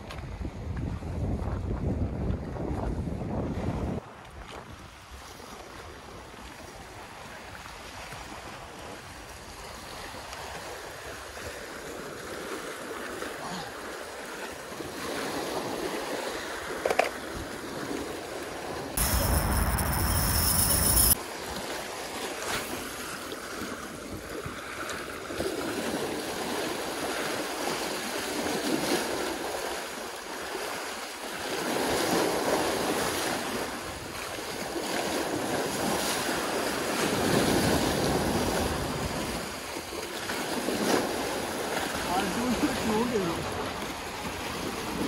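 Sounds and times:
wind buffeting microphone: 0.0 - 7.1
waves breaking over rocks: 4.0 - 45.0.

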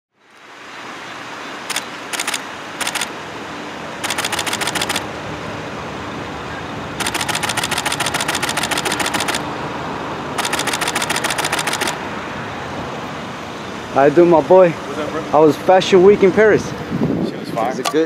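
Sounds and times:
street traffic hum: 0.1 - 18.0
camera shutter clicks: 1.7 - 3.2, 4.0 - 5.1, 7.0 - 9.5, 10.4 - 12.0.

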